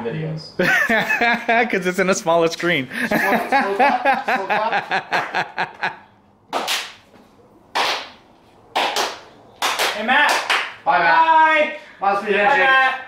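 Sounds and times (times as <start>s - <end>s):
men talking: 0.0s - 5.8s, 9.9s - 13.0s
men laughing: 0.6s - 6.2s
sharp hand slaps: 6.5s - 10.8s.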